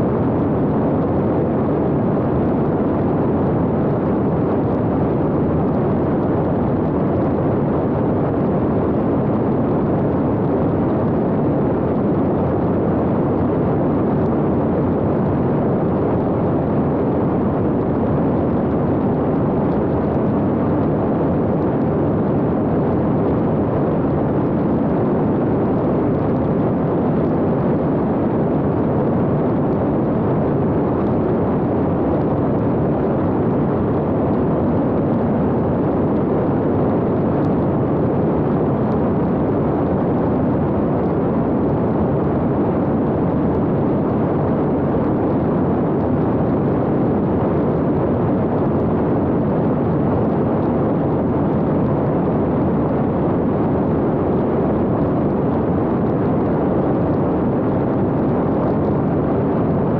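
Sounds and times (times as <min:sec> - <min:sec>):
drone propeller and airflow rush: 0:00.0 - 0:59.9.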